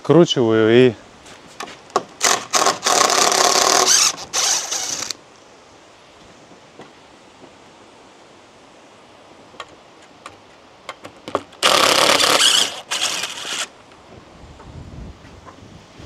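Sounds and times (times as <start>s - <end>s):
cordless drill unscrewing: 2.2s - 5.2s, 11.6s - 13.7s.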